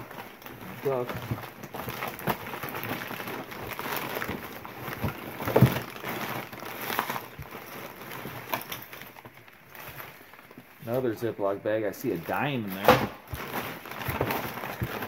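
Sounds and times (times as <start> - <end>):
small clacks of items: 0.0 - 10.7
rustling of papers and bags: 0.0 - 15.0.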